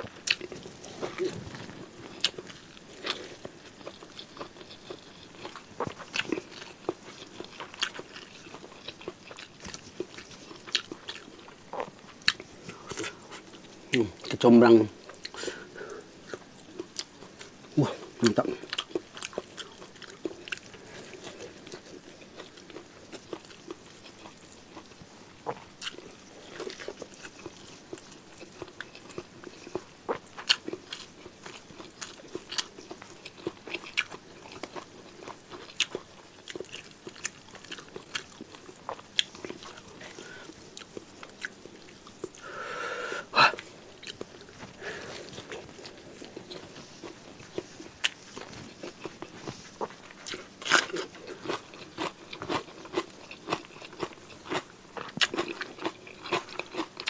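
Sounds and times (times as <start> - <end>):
man chewing and biting: 0.0 - 13.8, 18.5 - 42.4, 43.5 - 57.0.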